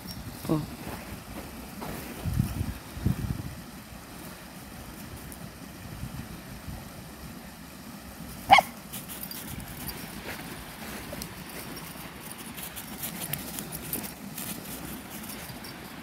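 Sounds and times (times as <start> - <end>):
puppy yipping: 8.5 - 8.8.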